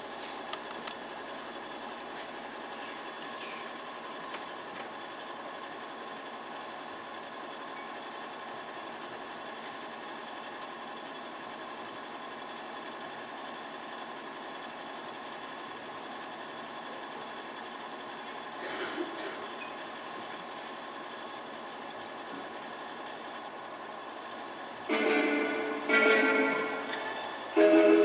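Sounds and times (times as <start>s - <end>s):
faint hum: 24.2s - 28.0s.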